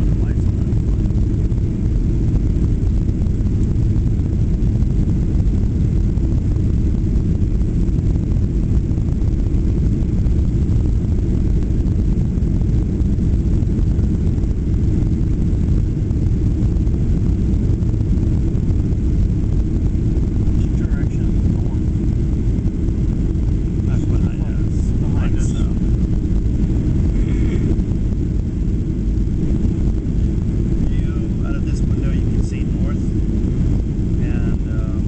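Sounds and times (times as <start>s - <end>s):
jet engines rumbling: 0.0s - 35.0s
rushing air: 0.0s - 35.0s.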